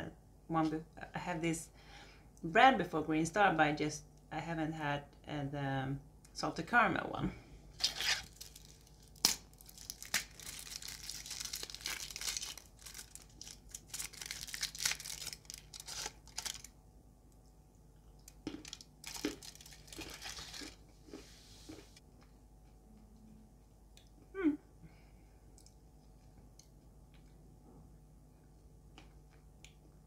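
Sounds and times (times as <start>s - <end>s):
packaging crinkling: 7.8s - 16.8s, 18.5s - 20.8s.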